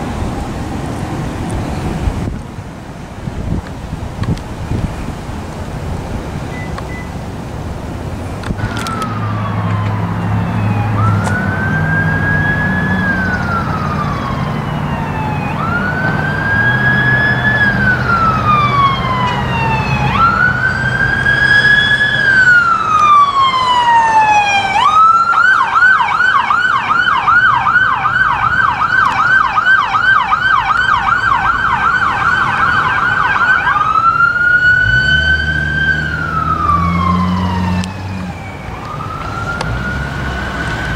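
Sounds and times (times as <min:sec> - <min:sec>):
low vehicle engine rumble: 0:00.0 - 0:25.4
police siren wailing and yelping: 0:08.4 - 0:40.9.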